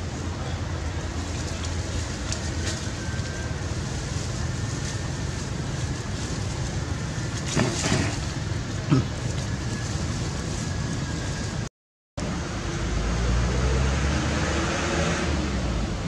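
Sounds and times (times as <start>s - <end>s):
low outdoor rumble: 0.0s - 14.2s.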